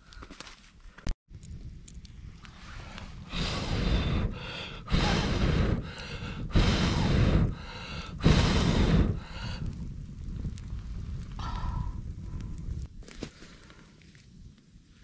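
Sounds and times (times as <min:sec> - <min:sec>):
blowing through a pipe: 0:02.7 - 0:09.7
person breathing in: 0:03.3 - 0:09.8, 0:11.4 - 0:12.0.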